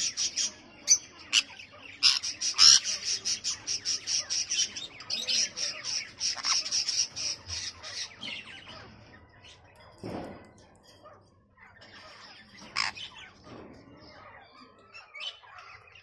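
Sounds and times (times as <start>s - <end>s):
parrots squawking: 0.0s - 9.2s, 11.8s - 13.4s.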